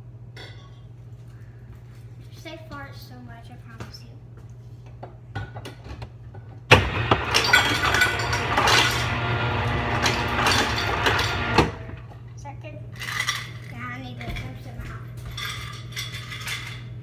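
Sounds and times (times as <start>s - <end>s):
ice clattering into metal bottle: 7.2s - 9.2s, 9.9s - 11.5s.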